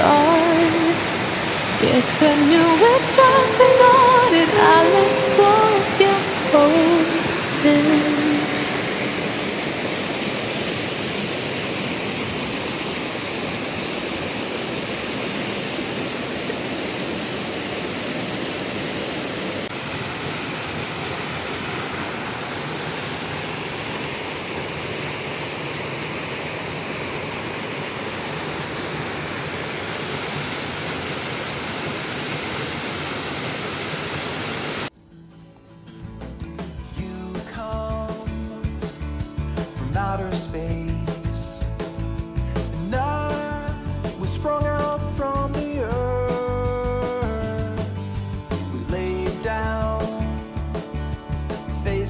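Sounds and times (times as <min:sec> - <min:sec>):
water rushing over boulders: 0:00.0 - 0:34.9.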